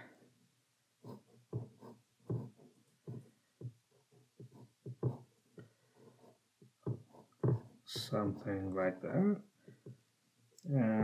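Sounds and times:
pen scratching on paper: 0:01.0 - 0:08.8.

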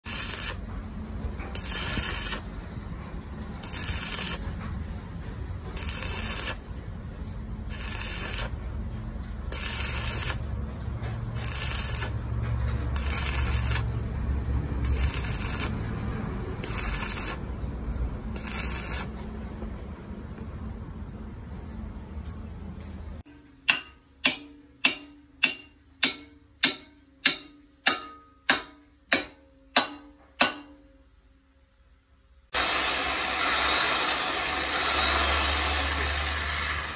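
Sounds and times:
welding arc crackling: 0:00.0 - 0:00.7, 0:01.6 - 0:02.6, 0:03.6 - 0:04.6, 0:05.7 - 0:06.8, 0:07.6 - 0:08.7, 0:09.4 - 0:10.6, 0:11.3 - 0:12.3, 0:12.9 - 0:14.2, 0:14.8 - 0:15.9, 0:16.5 - 0:17.7, 0:18.3 - 0:19.2, 0:32.6 - 0:36.9.

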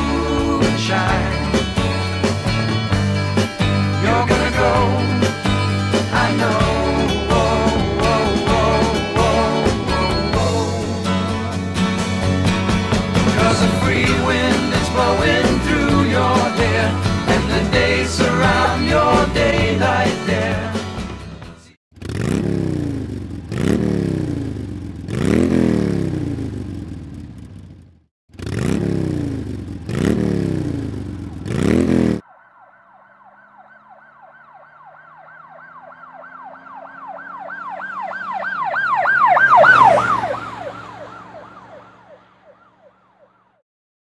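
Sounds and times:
engine revving: 0:00.0 - 0:21.2, 0:21.9 - 0:32.2, 0:39.3 - 0:41.6
wailing siren: 0:01.5 - 0:11.6, 0:32.2 - 0:43.6.

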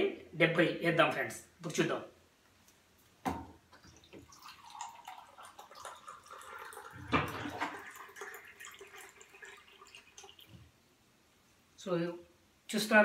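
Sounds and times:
water pouring into plastic cup: 0:03.8 - 0:10.6.

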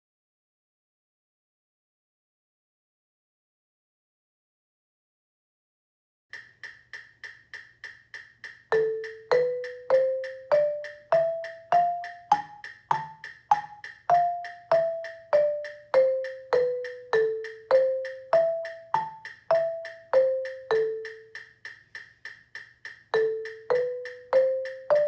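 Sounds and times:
metronome click: 0:06.4 - 0:25.0
xylophone notes: 0:08.7 - 0:21.5, 0:23.1 - 0:25.0.

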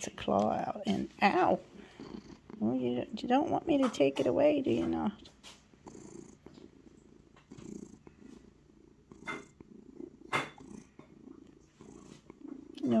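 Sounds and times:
cat purring: 0:00.0 - 0:13.0.

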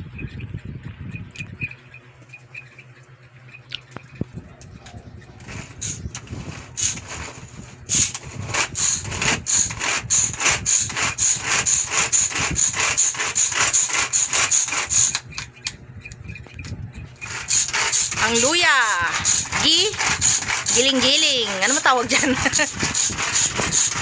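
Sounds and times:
ginger being scraped: 0:05.2 - 0:24.0.

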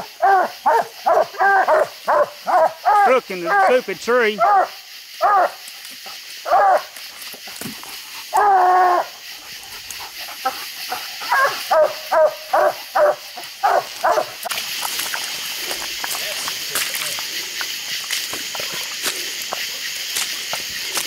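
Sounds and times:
dog barking and bawling: 0:00.0 - 0:05.6, 0:06.4 - 0:06.9, 0:08.3 - 0:14.4.

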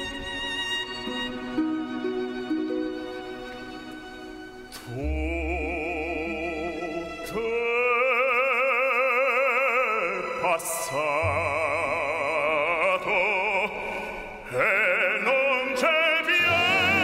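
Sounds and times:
orchestra with strings: 0:00.0 - 0:17.0
man singing operatic style: 0:04.8 - 0:17.0.

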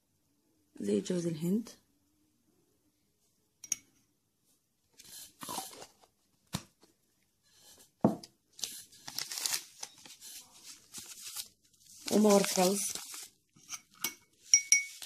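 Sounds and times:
spoon clinking on ceramic bowl: 0:03.6 - 0:04.0, 0:13.6 - 0:15.0.

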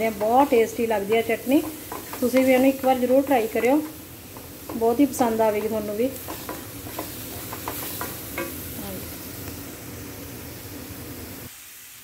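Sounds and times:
wooden spatula scraping pan: 0:00.0 - 0:08.6
paste sizzling in metal pan: 0:00.0 - 0:12.0.

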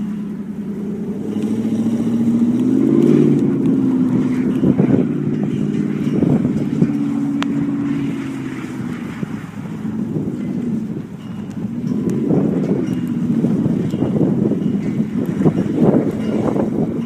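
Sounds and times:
truck engine revving hard: 0:00.0 - 0:11.0.

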